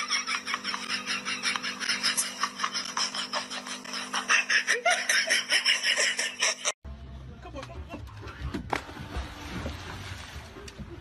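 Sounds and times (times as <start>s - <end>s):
person laughing hard: 0.0s - 6.8s.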